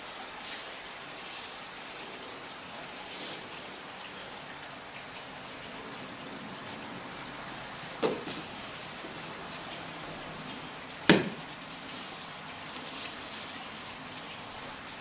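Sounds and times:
room noise hiss: 0:00.0 - 0:15.0
cotton uniforms rustling: 0:08.0 - 0:14.8.

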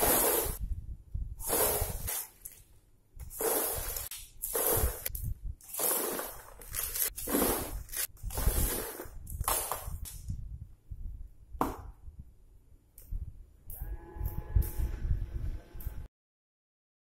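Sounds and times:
plastic bag rustling: 0:05.7 - 0:10.0.

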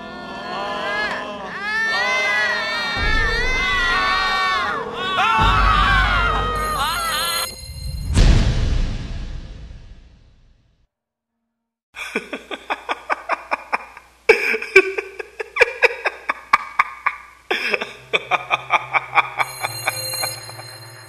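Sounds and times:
music with high tones: 0:05.4 - 0:08.5, 0:19.2 - 0:21.0
laughter: 0:12.0 - 0:20.8.

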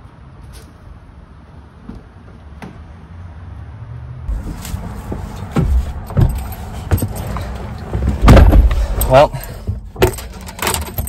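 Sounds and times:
rustling: 0:04.3 - 0:10.7.

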